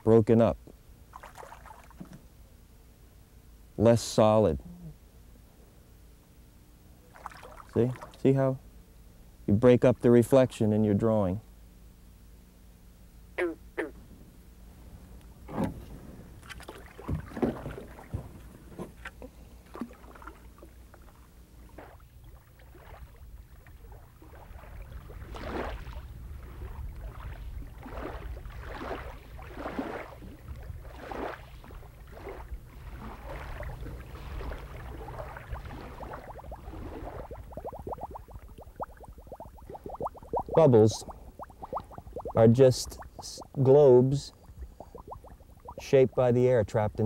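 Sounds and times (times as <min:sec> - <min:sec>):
low steady rumble: 0:00.0 - 0:47.0
sharp water plops: 0:01.1 - 0:02.0, 0:07.1 - 0:08.2, 0:26.6 - 0:43.6, 0:44.3 - 0:46.2
small splashes and gurgles: 0:01.1 - 0:02.2, 0:07.1 - 0:08.2, 0:16.4 - 0:18.3, 0:19.0 - 0:43.6, 0:44.3 - 0:46.2.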